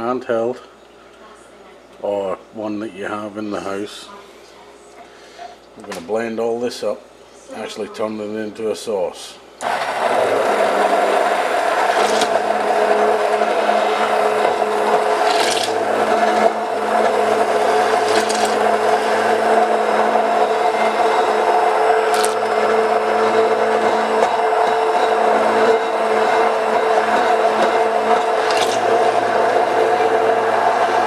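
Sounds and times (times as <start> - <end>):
immersion blender running: 9.6 - 31.0.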